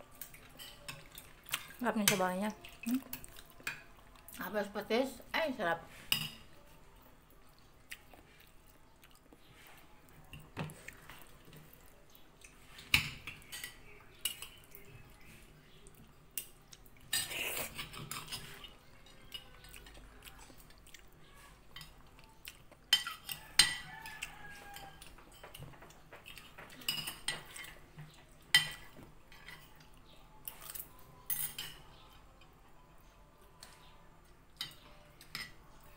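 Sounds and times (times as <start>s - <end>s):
cutlery clinking on plates: 0.1s - 4.0s, 6.1s - 6.6s, 12.5s - 14.9s, 16.3s - 20.7s, 22.8s - 32.6s, 34.6s - 35.7s.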